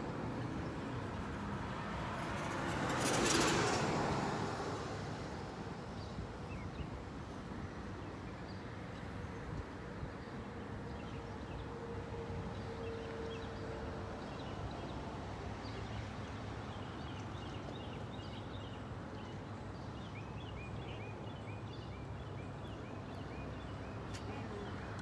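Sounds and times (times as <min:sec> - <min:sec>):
car passing: 0:00.0 - 0:06.5
background traffic hum: 0:00.0 - 0:25.0.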